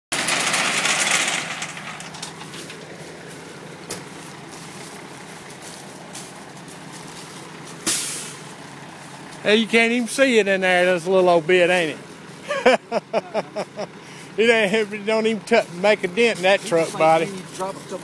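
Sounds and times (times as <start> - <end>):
gravel rushing: 0.1 - 12.8
truck engine running: 0.1 - 18.0.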